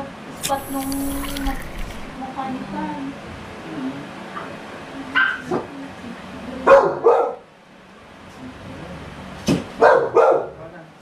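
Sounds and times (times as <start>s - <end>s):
puppy barking: 9.8s - 10.5s.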